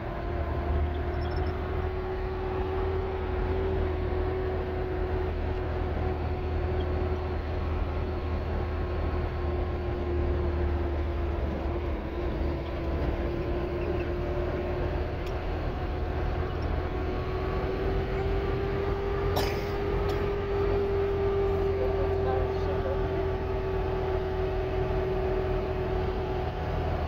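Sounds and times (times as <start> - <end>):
road rumble: 0.0 - 27.0
vehicle engine cruising: 0.0 - 27.0.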